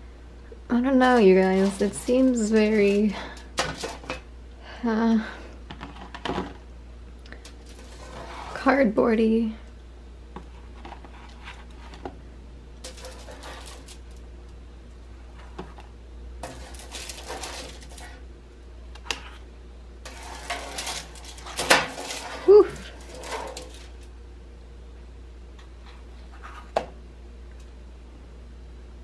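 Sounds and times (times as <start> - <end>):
foil crinkling: 1.1 - 4.2, 7.3 - 8.7, 12.8 - 14.2, 16.4 - 18.2, 20.1 - 24.1
spatula scraping and tapping: 12.8 - 14.0, 15.4 - 18.1, 20.1 - 23.8.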